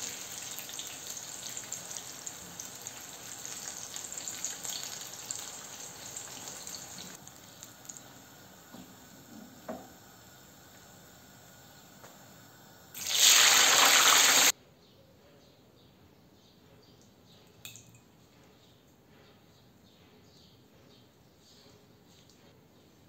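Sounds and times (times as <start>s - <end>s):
food sizzling in hot oil: 0.0s - 11.7s, 12.3s - 14.5s.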